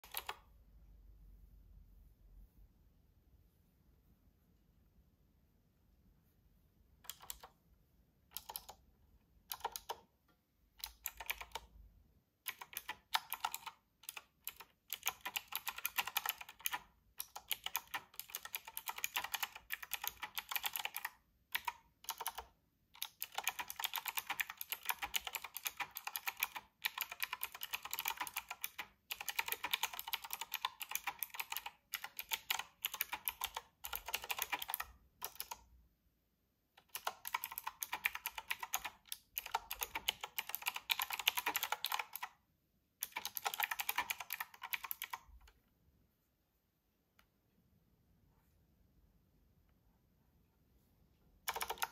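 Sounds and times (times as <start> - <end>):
mechanical keyboard typing: 0.0 - 0.5, 7.0 - 7.6, 8.3 - 8.8, 9.4 - 10.1, 10.8 - 11.8, 12.4 - 35.7, 36.8 - 42.4, 43.0 - 45.6, 51.4 - 51.9.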